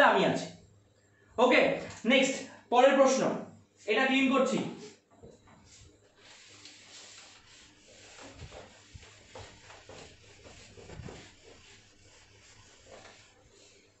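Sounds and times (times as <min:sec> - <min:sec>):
duster rubbing on whiteboard: 0:05.7 - 0:14.0.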